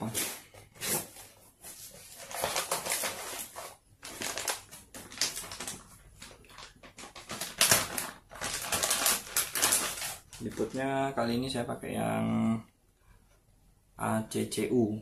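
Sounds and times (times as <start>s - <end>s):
packaging crinkling and rustling: 0.0s - 11.2s.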